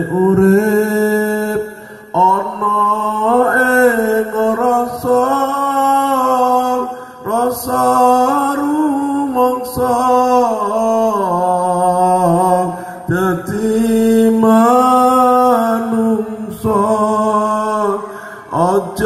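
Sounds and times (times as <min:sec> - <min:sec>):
man singing unaccompanied: 0:00.0 - 0:19.0.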